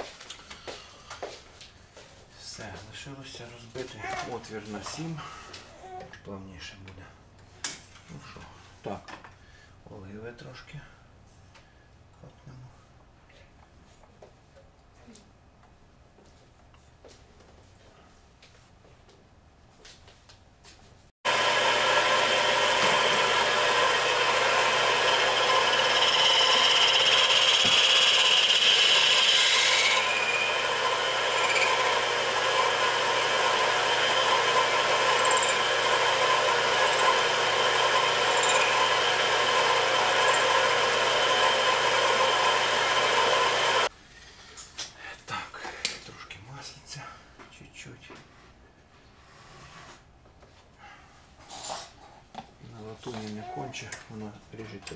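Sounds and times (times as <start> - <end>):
drill bit cutting screech: 21.3 - 43.9
metal lathe whining: 21.3 - 43.9.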